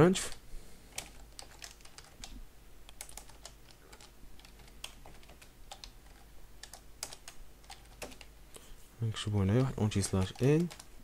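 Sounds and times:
computer keyboard typing: 0.9 - 8.3, 9.4 - 10.9.

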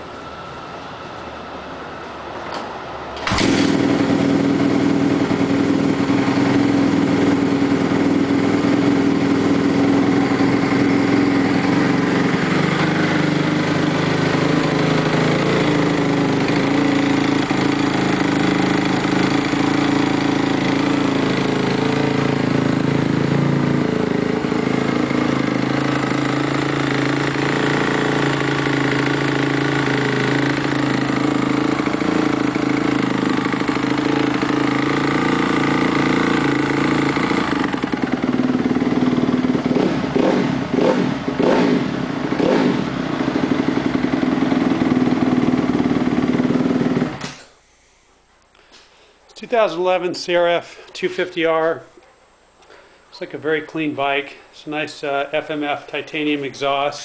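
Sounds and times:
motorcycle engine idling: 3.2 - 47.3.

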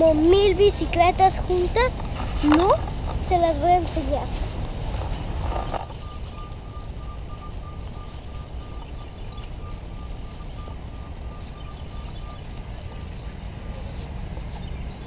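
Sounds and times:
low outdoor rumble: 0.0 - 15.0
short high beeps: 5.9 - 12.6.

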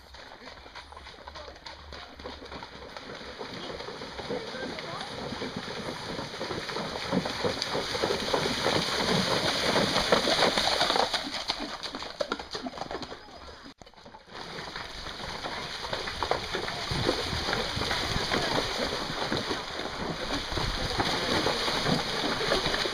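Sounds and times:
hooves splashing through stream: 0.0 - 22.9
rushing water: 2.2 - 12.9, 14.3 - 22.9.

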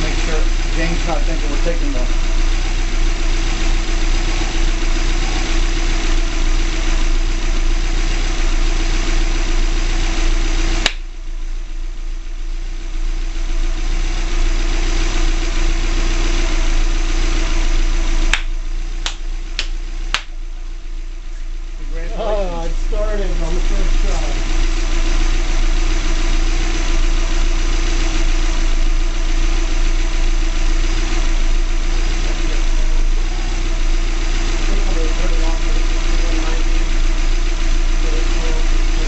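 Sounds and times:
car engine idling: 0.0 - 39.0.

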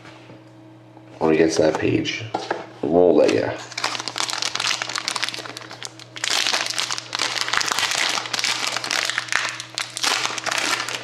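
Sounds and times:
foil wrapper crinkling: 3.6 - 11.0.

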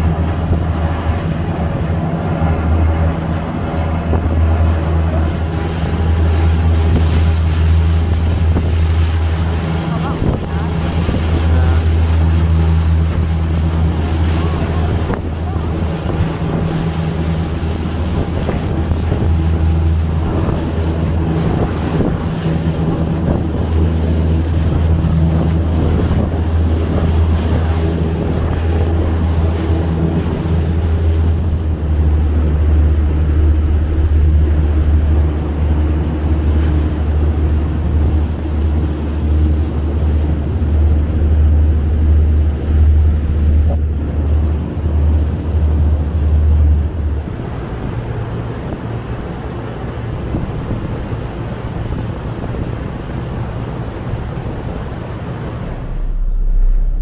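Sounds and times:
ferry engines droning: 0.0 - 57.0
wind buffeting microphone: 0.0 - 57.0.

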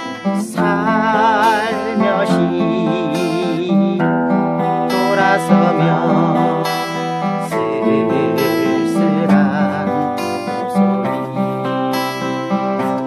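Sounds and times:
guitar background music: 0.0 - 13.0
melody with vibrato: 0.0 - 13.0.

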